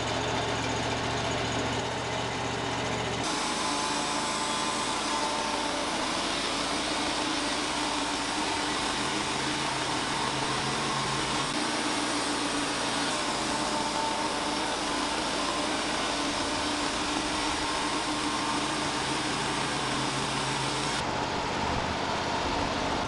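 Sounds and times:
sawmill engine running under load: 0.0 - 23.0
band blade cutting through log: 3.2 - 21.0.

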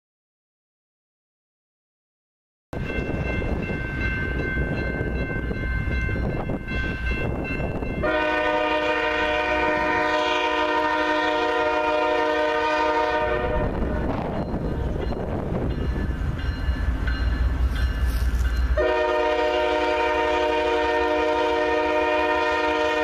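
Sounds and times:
train engine rumble: 2.8 - 23.0
locomotive air horn blast: 8.0 - 14.1, 18.8 - 23.0.

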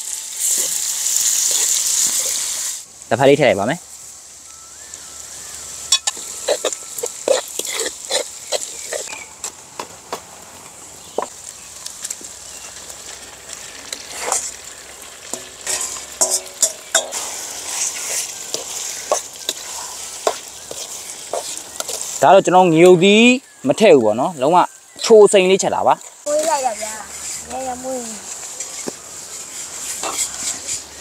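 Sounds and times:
meat sizzling in a pan: 0.0 - 31.0
utensil scraping a pan: 5.9 - 9.3, 13.6 - 14.6, 15.3 - 22.2, 26.4 - 31.0.

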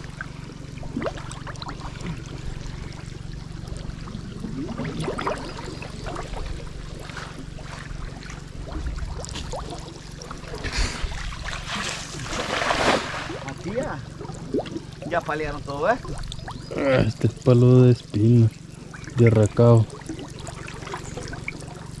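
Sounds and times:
low rumble: 0.0 - 22.0
splashing in water: 4.4 - 13.7.

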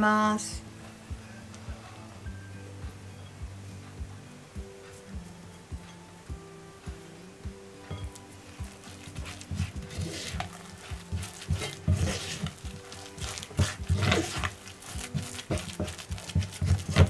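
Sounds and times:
soft background music: 0.0 - 17.0
spoon scraping paste in bowl: 8.6 - 17.0.

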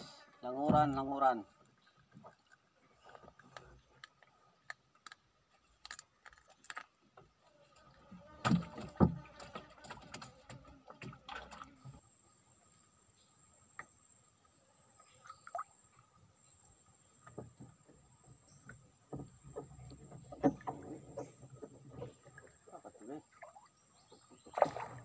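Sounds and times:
handling clicks and knocks in boat: 0.6 - 7.4, 17.0 - 23.2.

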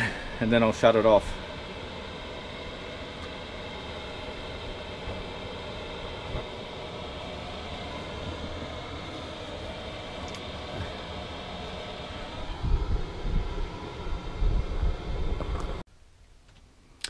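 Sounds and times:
air heater rushing hum: 0.0 - 15.9.

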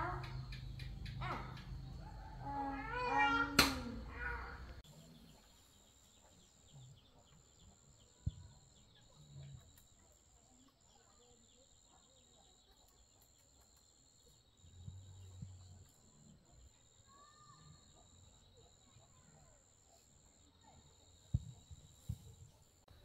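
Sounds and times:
sharp click: 3.6 - 3.9.

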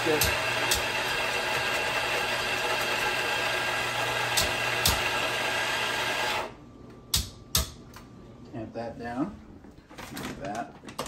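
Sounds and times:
electric coffee grinder running: 0.0 - 6.6.

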